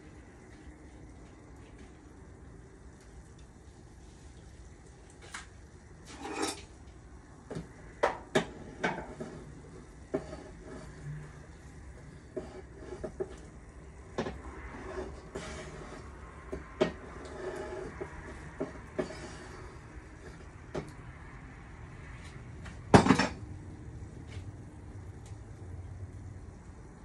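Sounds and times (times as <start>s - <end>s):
knocks and scrapes in oven: 5.2s - 6.8s, 7.4s - 21.0s.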